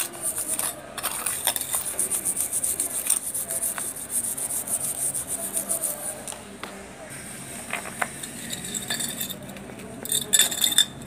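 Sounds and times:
toothbrush scrubbing metal: 0.0s - 6.4s.

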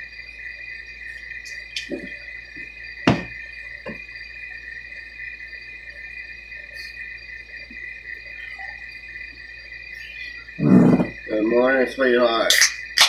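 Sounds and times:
high-pitched two-tone whine: 0.0s - 13.0s
sharp knock: 3.1s - 3.3s.

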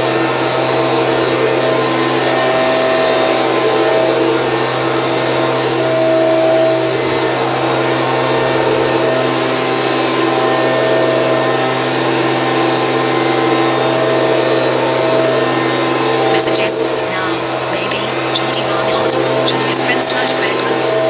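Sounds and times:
leaf blower running: 0.0s - 16.3s.

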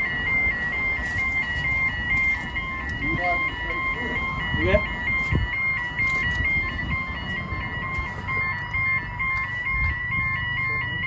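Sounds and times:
two-tone electronic alarm: 0.0s - 11.0s.

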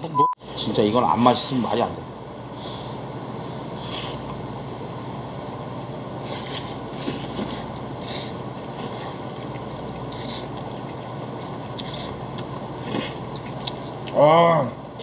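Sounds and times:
low background hum: 0.0s - 15.0s
people slurping noodles: 3.7s - 4.4s, 6.2s - 14.1s.

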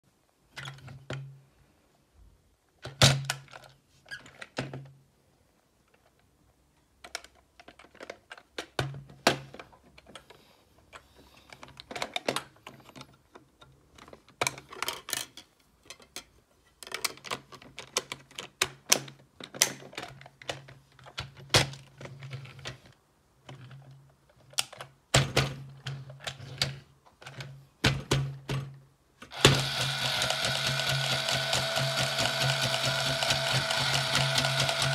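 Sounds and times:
plastic clicks and knocks: 7.0s - 10.2s.

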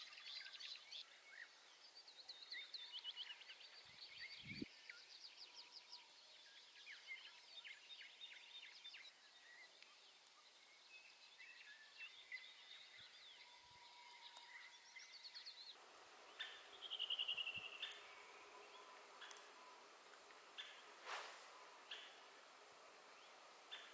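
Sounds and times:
faint songbirds chirping: 0.0s - 23.9s
rapid falling bird trill: 15.9s - 23.9s.

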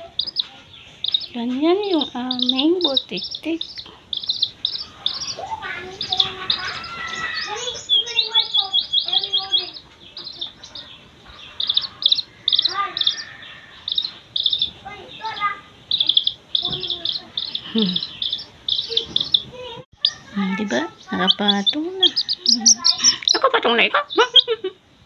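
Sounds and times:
chick peeping: 0.0s - 24.8s.

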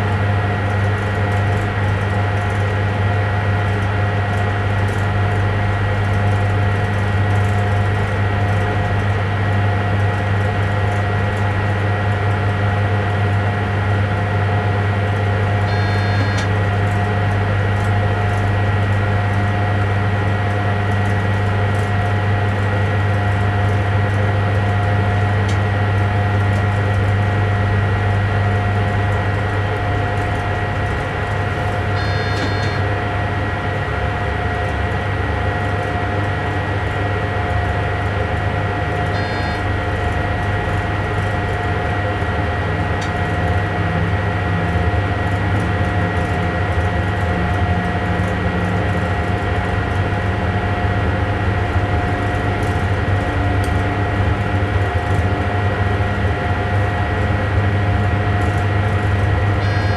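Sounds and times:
train cab hum and whine: 0.0s - 59.9s
short high beeps: 15.7s - 16.5s, 32.0s - 32.8s, 39.2s - 39.6s.

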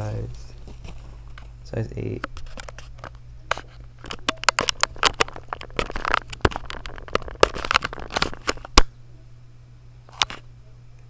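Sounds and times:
rustling handling noise: 0.0s - 8.8s
sharp clicks and knocks: 2.2s - 8.9s.

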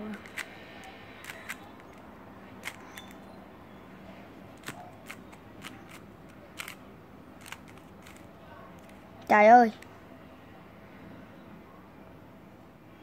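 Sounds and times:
puzzle cube clicking: 0.1s - 0.5s, 1.2s - 2.0s, 2.6s - 3.2s, 4.6s - 6.0s, 6.6s - 6.8s, 7.4s - 9.0s.

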